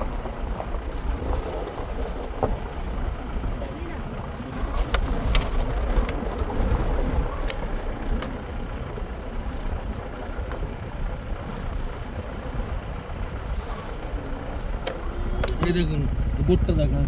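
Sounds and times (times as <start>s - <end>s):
engine and road rumble: 0.0s - 17.0s
sharp clicks and rattles: 0.1s - 12.1s.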